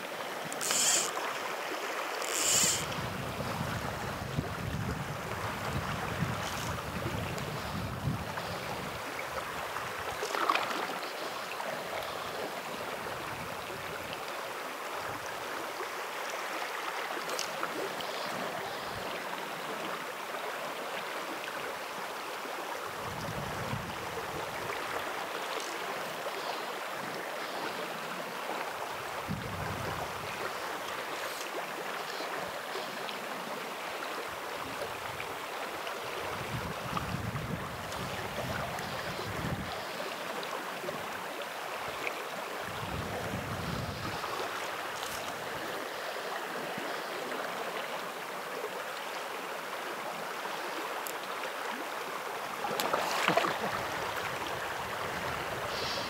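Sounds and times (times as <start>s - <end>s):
creek water flowing: 0.0s - 56.0s
wind buffeting microphone: 2.8s - 9.0s, 23.0s - 24.1s, 29.2s - 30.2s, 36.4s - 39.7s, 42.7s - 44.2s.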